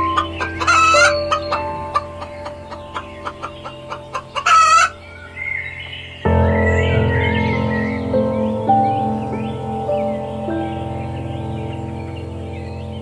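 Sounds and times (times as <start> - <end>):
rooster calling: 0.0 - 5.0
light background music: 0.0 - 13.0.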